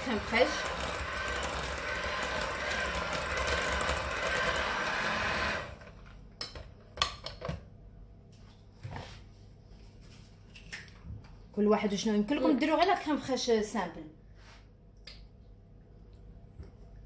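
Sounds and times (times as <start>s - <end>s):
electric hand mixer running: 0.0s - 6.0s.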